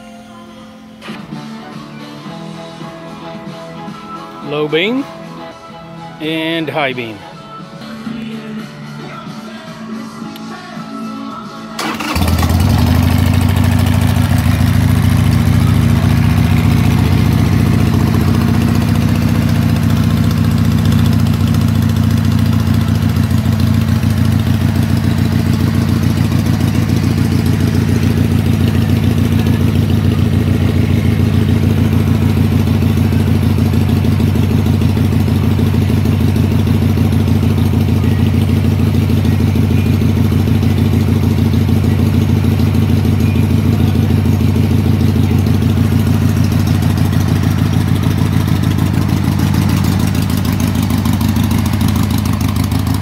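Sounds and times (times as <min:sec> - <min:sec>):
motorcycle engine idling: 0:11.8 - 0:53.0.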